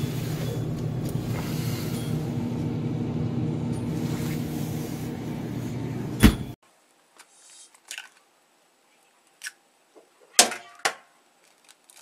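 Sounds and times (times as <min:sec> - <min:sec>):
compressor and fan humming: 0:00.0 - 0:06.6.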